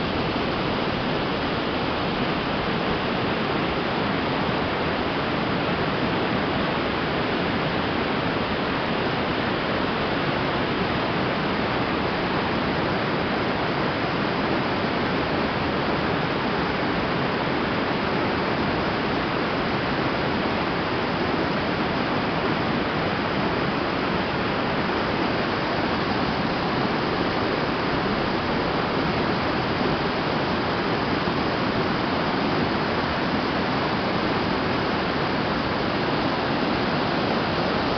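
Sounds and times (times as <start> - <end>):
small waterfall rushing: 0.0 - 37.9.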